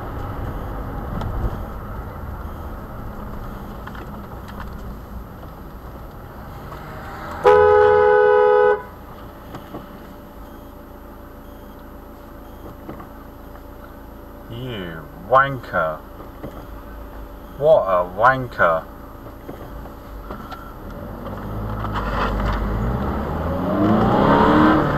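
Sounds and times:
road and engine noise: 0.0 - 24.9
two-tone car horn: 6.8 - 9.0.

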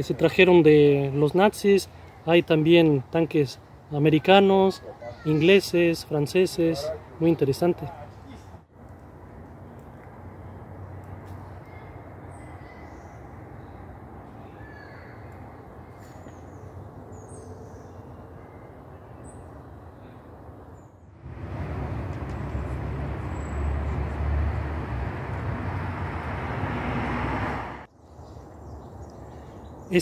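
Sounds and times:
rushing noise with low rumble: 21.2 - 27.9.

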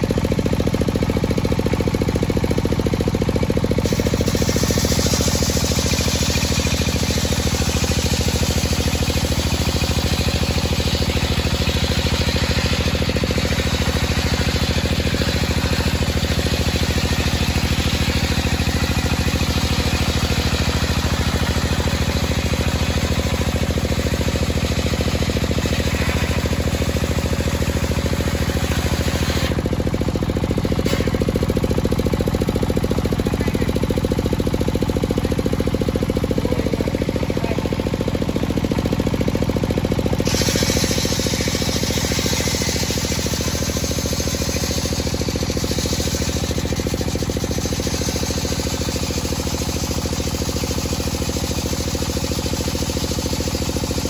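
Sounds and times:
saw blade cutting wood: 3.7 - 29.6, 30.7 - 31.4, 40.2 - 50.8.

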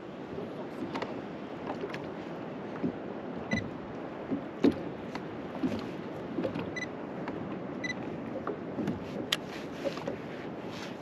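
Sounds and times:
water washing against hull: 0.0 - 11.0
knocks on boat: 2.7 - 7.6, 8.3 - 9.3.

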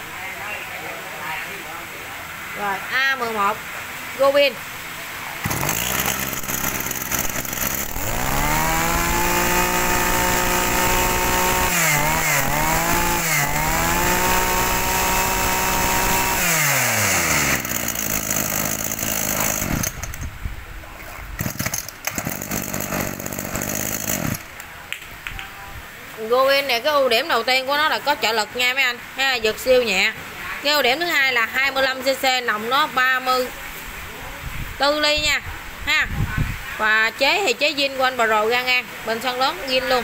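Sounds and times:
brush cutter engine running: 5.4 - 20.3, 21.4 - 24.6.

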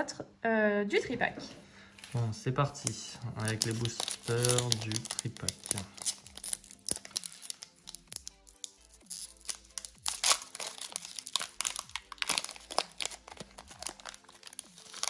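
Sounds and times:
foil pack crinkling and tearing: 2.1 - 15.0.

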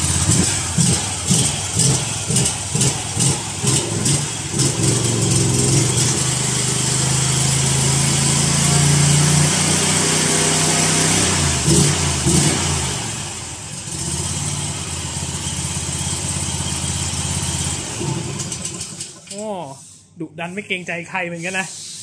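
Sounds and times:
engine revving: 0.0 - 19.2.

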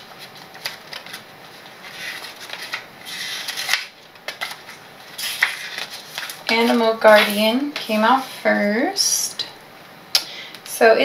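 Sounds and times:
paper rustling: 0.0 - 8.6.

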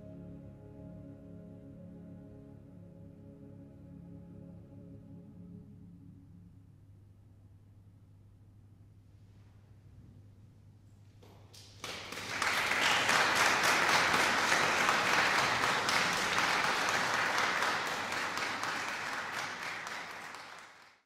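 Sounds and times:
faint low hum: 3.7 - 20.8
audience applause: 11.6 - 21.0.

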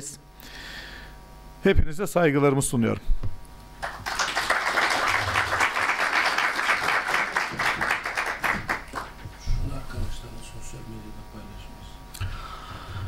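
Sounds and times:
audience applauding: 3.8 - 9.3.

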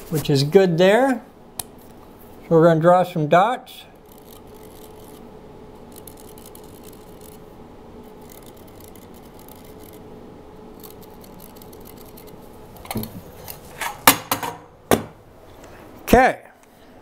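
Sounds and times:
marker scratching on concrete: 5.9 - 7.4, 8.1 - 10.0.

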